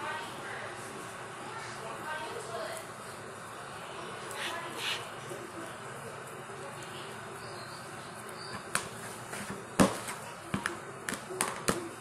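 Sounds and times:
spatula stirring slime: 0:04.1 - 0:05.2.

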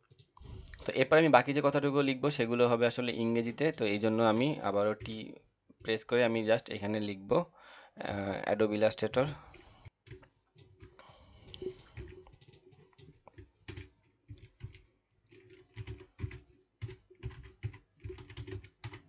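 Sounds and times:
typing on a computer keyboard: 0:00.0 - 0:00.3, 0:10.0 - 0:19.0.

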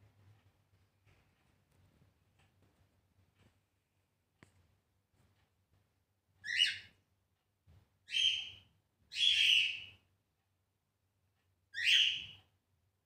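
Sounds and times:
cockatiel screeching calls: 0:06.4 - 0:06.9, 0:08.1 - 0:09.9, 0:11.8 - 0:12.4.

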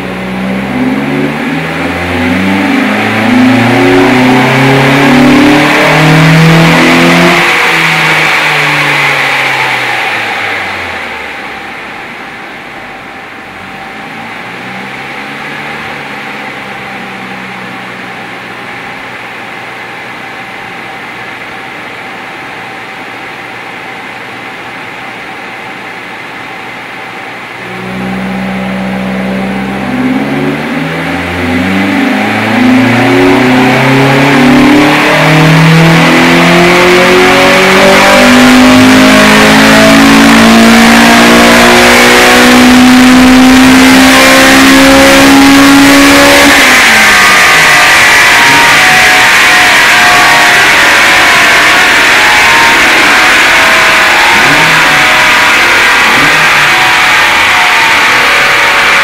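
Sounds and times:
car engine revving at full throttle: 0:00.0 - 0:59.0.

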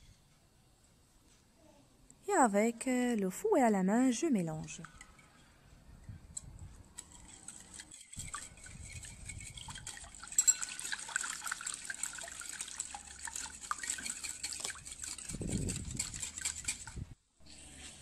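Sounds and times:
wire whisk beating liquid in bowl: 0:04.1 - 0:05.5, 0:06.3 - 0:17.2.

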